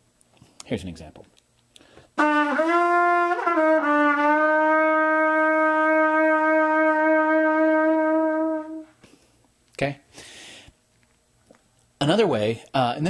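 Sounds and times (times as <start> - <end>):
trumpet long held note: 2.2 - 9.0.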